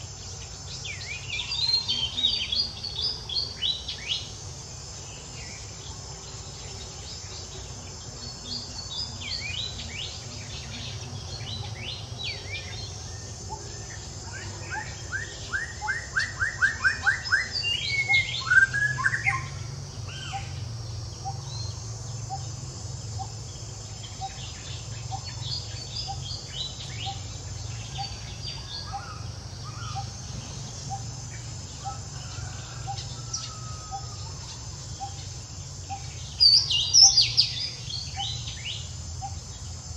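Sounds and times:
low background hum: 0.0 - 39.9
birds chirping and calling: 8.5 - 22.5, 23.2 - 39.8.

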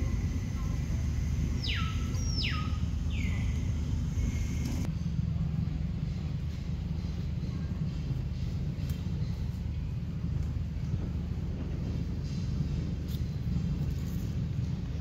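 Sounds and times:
steady low rumble: 0.0 - 15.0
whistle-like falling calls: 1.6 - 3.6.

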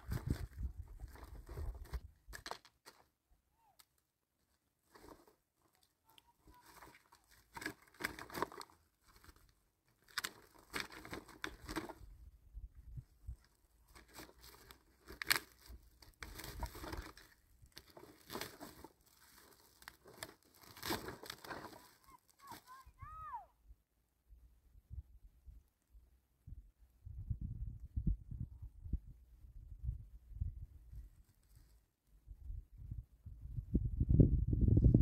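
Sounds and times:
plastic sack rustling: 6.5 - 12.0, 13.9 - 22.8.

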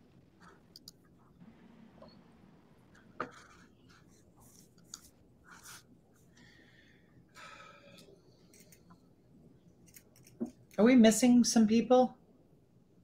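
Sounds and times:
faint clicks and rustles: 2.9 - 6.5, 7.9 - 9.1.

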